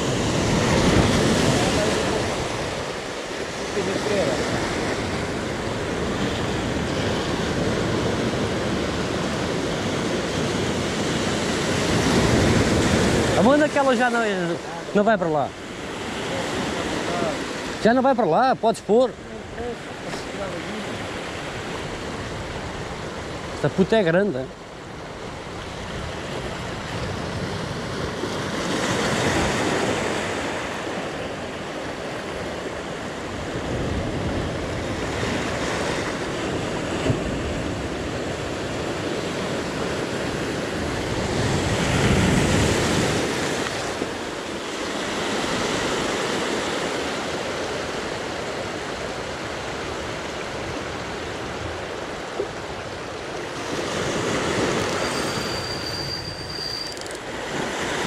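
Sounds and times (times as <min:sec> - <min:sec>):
surf breaking on shore: 0:00.0 - 0:56.3, 0:56.9 - 0:58.0.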